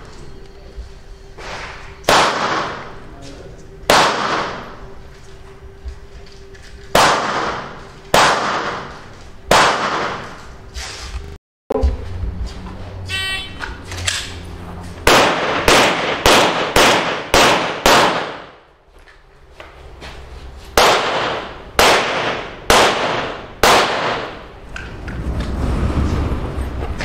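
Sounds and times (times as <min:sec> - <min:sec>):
pistol shots: 0:02.0 - 0:03.0, 0:03.8 - 0:04.8, 0:06.9 - 0:10.4, 0:15.0 - 0:18.6, 0:20.8 - 0:24.4.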